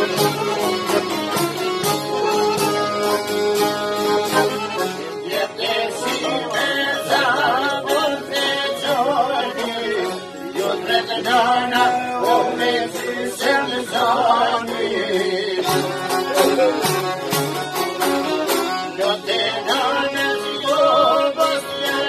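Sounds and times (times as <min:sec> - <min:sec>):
accordion: 0:00.0 - 0:22.0
plucked lutes: 0:00.0 - 0:22.0
violin: 0:00.0 - 0:22.0
man singing: 0:05.3 - 0:16.9, 0:18.8 - 0:22.0.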